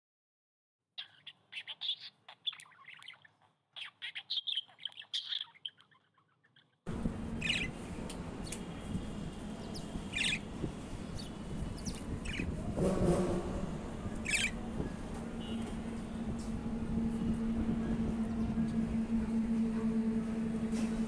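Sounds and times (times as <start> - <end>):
budgerigars chirping: 1.0 - 6.1, 7.4 - 7.8, 9.6 - 12.6, 14.2 - 14.6.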